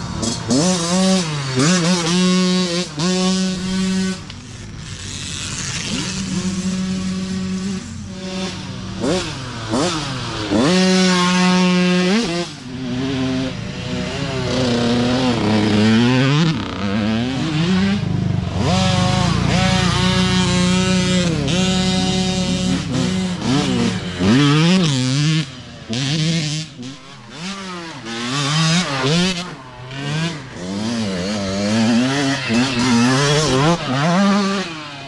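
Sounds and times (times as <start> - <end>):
dirt bike engines revving: 0.0 - 35.0.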